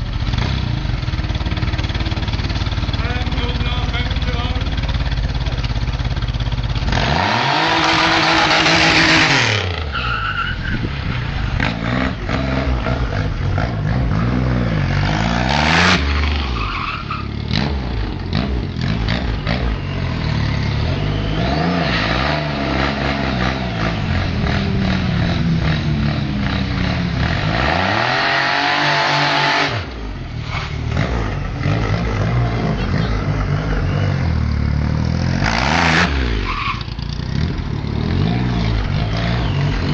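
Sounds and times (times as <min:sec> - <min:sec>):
motorcycle engine revving: 0:00.0 - 0:10.0, 0:10.6 - 0:39.9
tyre screeching on tarmac: 0:07.2 - 0:12.0, 0:15.6 - 0:17.9, 0:30.3 - 0:32.0, 0:35.8 - 0:37.6.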